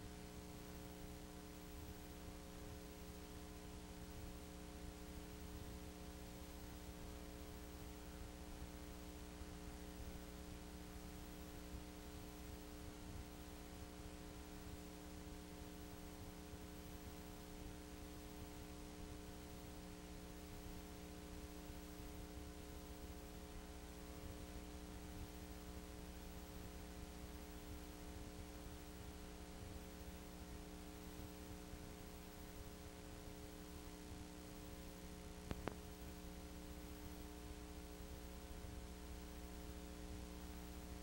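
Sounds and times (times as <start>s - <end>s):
faint electrical hum: 0.0s - 41.0s.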